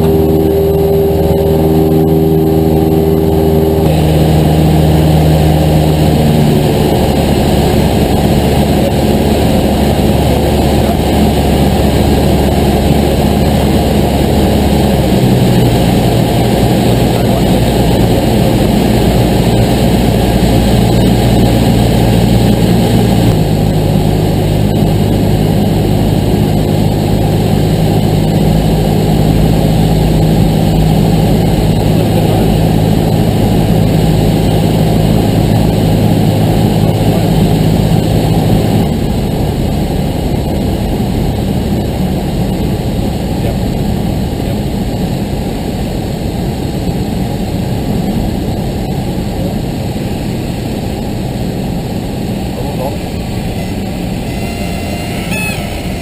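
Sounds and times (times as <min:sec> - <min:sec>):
light aircraft engine and propeller: 0:00.0 - 0:56.0.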